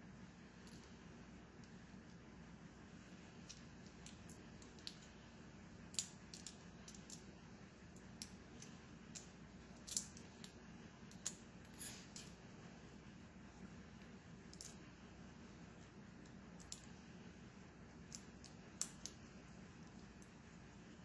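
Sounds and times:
small metal parts clicking: 0:03.4 - 0:05.1, 0:05.9 - 0:07.3, 0:07.9 - 0:12.4, 0:14.5 - 0:14.8.

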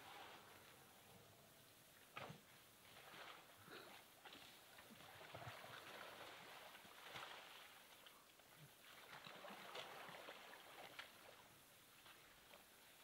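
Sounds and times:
soft ticks and rustles: 0:06.6 - 0:13.0.

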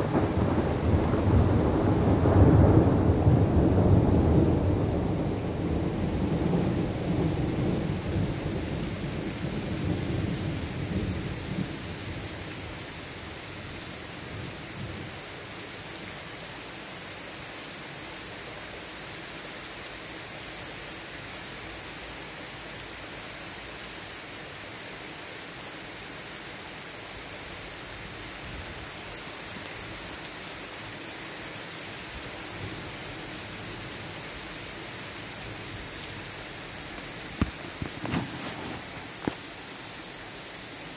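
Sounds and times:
thunder rumbling: 0:00.0 - 0:12.2, 0:37.0 - 0:39.6
steady rain: 0:00.0 - 0:40.9.

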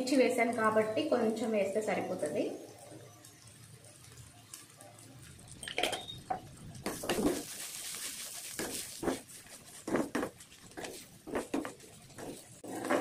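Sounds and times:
frying hiss: 0:00.0 - 0:13.0
spoon scraping metal pan: 0:08.6 - 0:13.0.

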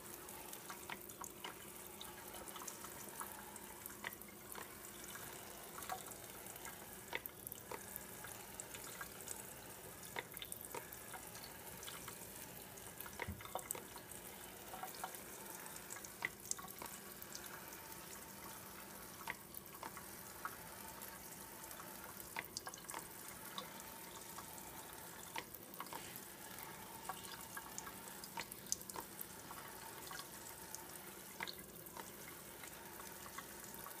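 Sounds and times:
sharp ticks and drips: 0:00.0 - 0:34.0.

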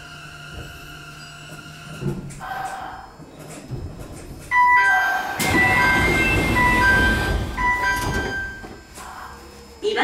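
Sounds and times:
electronic door chime: 0:04.5 - 0:08.9.

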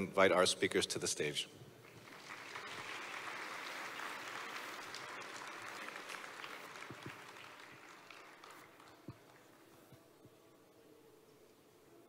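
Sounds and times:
audience applause: 0:01.8 - 0:09.6.

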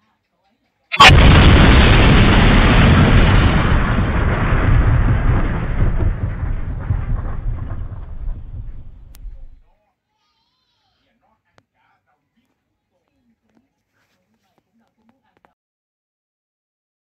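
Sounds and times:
faint crackles: 0:00.9 - 0:09.6
explosion blast: 0:01.0 - 0:09.6
long low rumble: 0:01.1 - 0:09.6.

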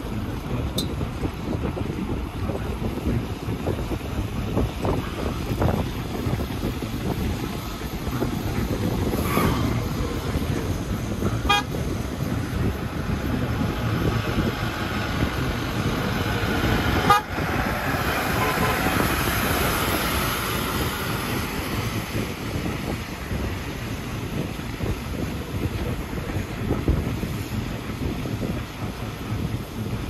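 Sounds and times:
road and vehicle noise: 0:00.0 - 0:30.0
wind rushing over microphone: 0:00.0 - 0:30.0
short horn toot: 0:11.4 - 0:11.8, 0:17.0 - 0:17.4, 0:18.3 - 0:19.0.

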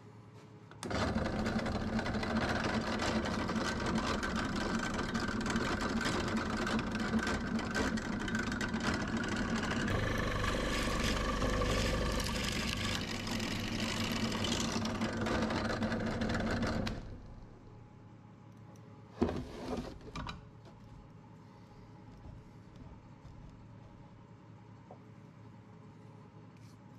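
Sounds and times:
drill press boring into wood: 0:00.8 - 0:17.1.

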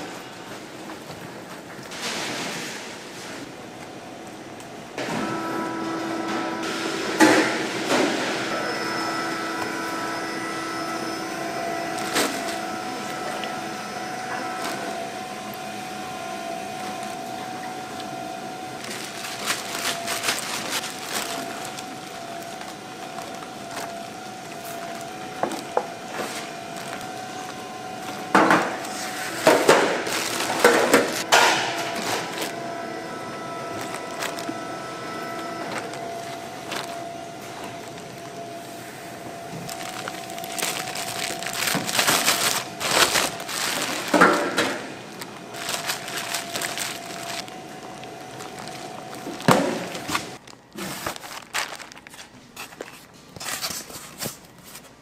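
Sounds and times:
machine hum: 0:00.0 - 0:53.0
clatter and handling noise: 0:39.5 - 0:55.0.

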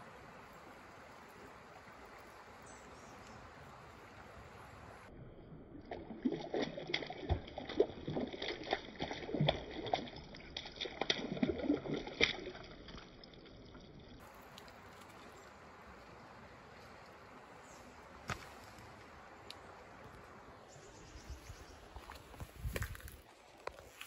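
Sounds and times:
fish splashing in water: 0:05.9 - 0:13.0.

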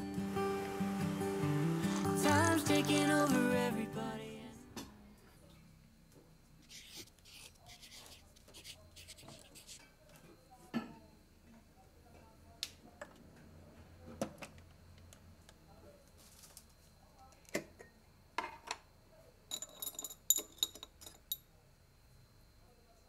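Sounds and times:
ringing glass clinks: 0:19.5 - 0:21.4.

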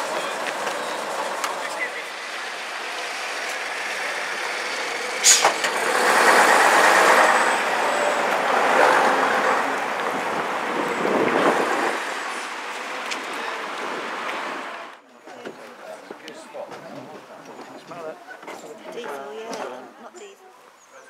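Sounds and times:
bus engine driving past: 0:00.0 - 0:15.0
sharp hiss: 0:05.2 - 0:05.7.

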